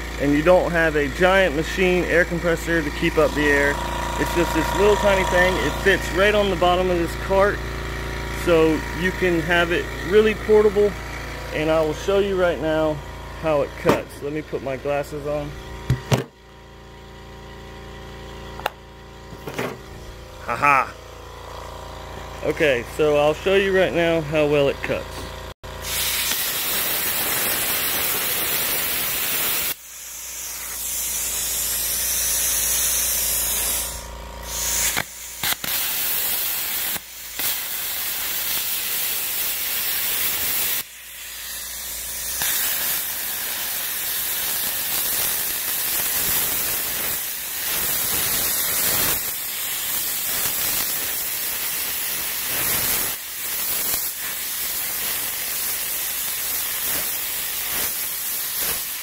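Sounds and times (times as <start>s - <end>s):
plasma cutter hissing: 1.1s - 7.6s, 25.8s - 59.0s.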